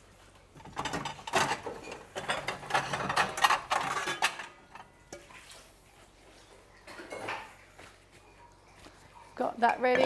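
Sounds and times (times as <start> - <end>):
ceramic plates clinking: 0.8 - 5.3, 9.6 - 10.0.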